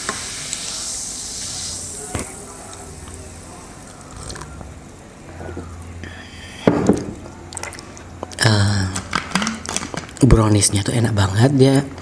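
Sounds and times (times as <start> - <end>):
man sipping and swallowing: 3.9 - 4.7
glass set down on table: 6.7 - 7.2.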